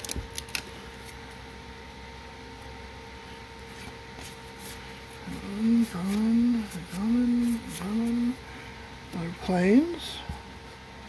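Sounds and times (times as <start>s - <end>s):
steady hum: 0.0s - 11.0s
cards being handled: 3.7s - 8.4s.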